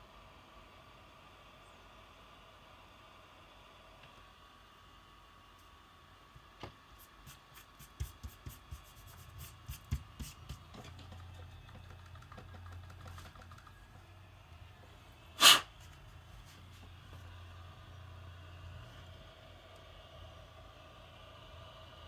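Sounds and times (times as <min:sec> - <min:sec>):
faint low hum: 0:00.0 - 0:22.0
loud burst of hiss: 0:15.3 - 0:15.8.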